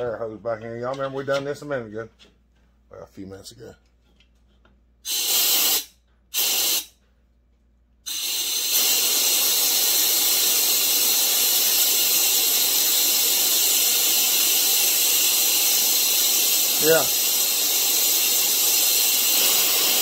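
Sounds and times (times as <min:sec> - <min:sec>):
compressed air hissing: 0:05.0 - 0:07.0, 0:08.0 - 0:20.0.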